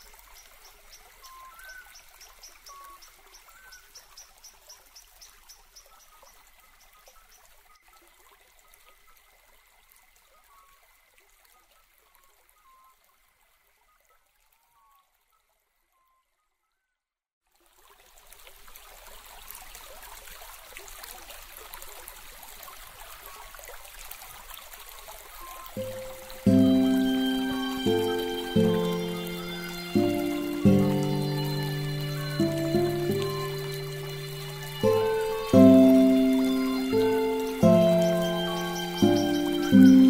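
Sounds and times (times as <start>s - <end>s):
trickling stream of water: 0.0s - 16.0s, 17.4s - 40.0s
bird-like chirps: 25.3s - 40.0s
low hiss: 25.3s - 40.0s.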